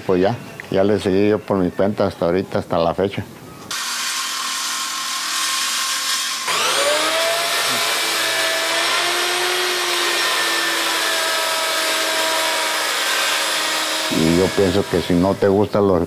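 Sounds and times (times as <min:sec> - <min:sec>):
motor whining: 0:03.7 - 0:15.4
power saw cutting wood: 0:03.7 - 0:15.7.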